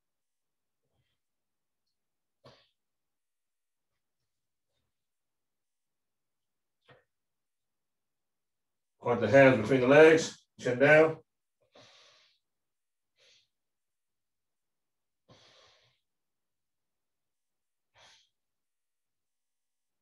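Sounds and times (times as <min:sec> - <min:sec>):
faint breaths: 0:11.6 - 0:12.5, 0:15.2 - 0:16.1.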